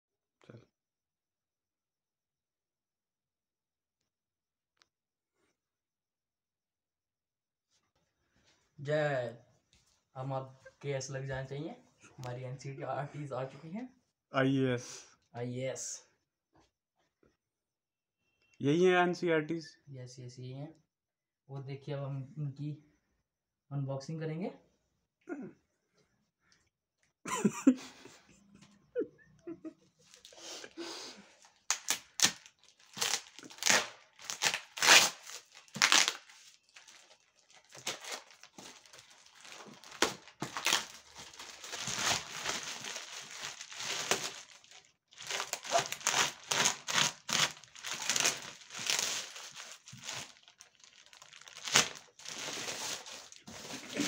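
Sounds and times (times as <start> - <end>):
plastic wrapping crinkling and tearing: 30.0 - 30.4, 31.3 - 54.0.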